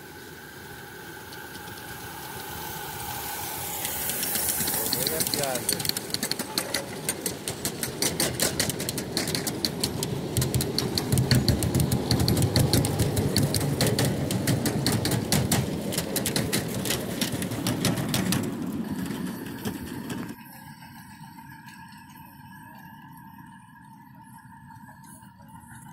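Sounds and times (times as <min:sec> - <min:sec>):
train wheels rumbling: 0:00.0 - 0:20.4
wheels clicking over rail joints: 0:00.1 - 0:20.4.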